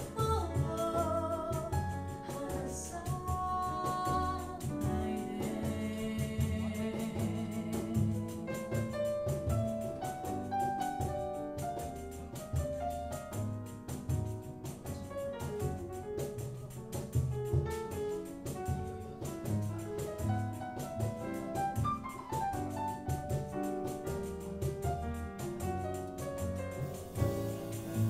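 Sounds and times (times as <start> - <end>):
double bass: 0.0 - 28.0
drum kit cymbals: 24.2 - 28.0.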